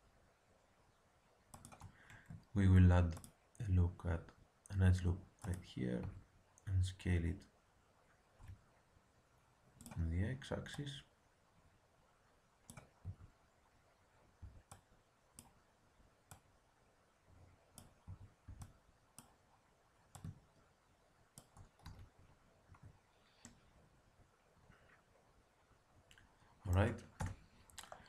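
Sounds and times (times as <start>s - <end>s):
mouse and keyboard clicks: 1.5s - 2.4s.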